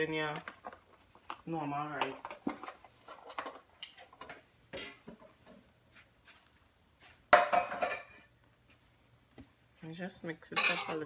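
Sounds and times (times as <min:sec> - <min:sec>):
metal cookware clattering: 0:07.4 - 0:08.3, 0:10.5 - 0:11.0.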